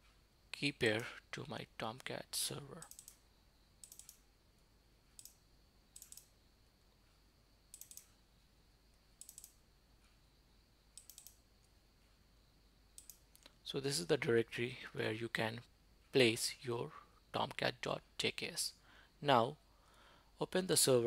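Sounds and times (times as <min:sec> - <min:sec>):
faint computer mouse clicking: 0:02.8 - 0:03.2, 0:03.8 - 0:04.2, 0:05.1 - 0:06.4, 0:07.7 - 0:08.2, 0:08.9 - 0:10.2, 0:11.0 - 0:11.8, 0:13.0 - 0:13.6.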